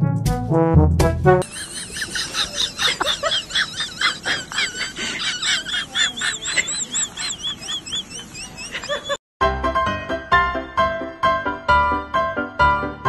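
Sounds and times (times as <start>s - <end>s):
small birds twittering: 5.4s - 9.2s.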